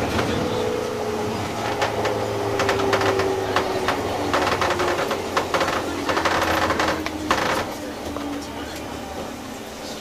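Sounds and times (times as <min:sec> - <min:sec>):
wheels clicking and rattling: 0:01.5 - 0:08.2.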